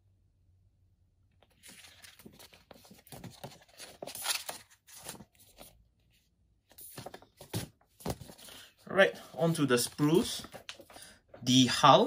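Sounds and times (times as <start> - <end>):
paper booklet rustling: 1.4 - 5.8, 6.7 - 8.7, 9.4 - 11.8.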